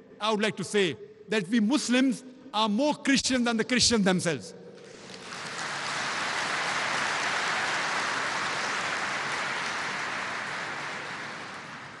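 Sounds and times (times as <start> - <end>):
large audience applauding: 4.8 - 12.0.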